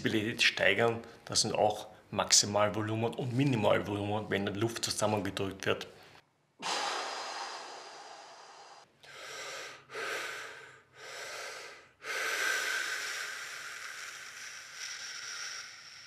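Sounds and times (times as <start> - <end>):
man breathing forcefully: 6.6 - 16.0.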